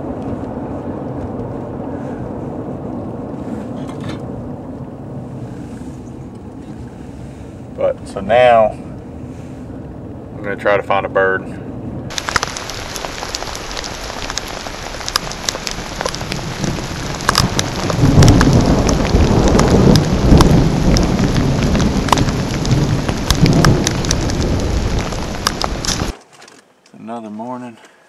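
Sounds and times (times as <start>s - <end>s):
rain falling in woods: 0.0s - 3.8s, 12.1s - 26.2s
low rumble: 0.0s - 26.1s.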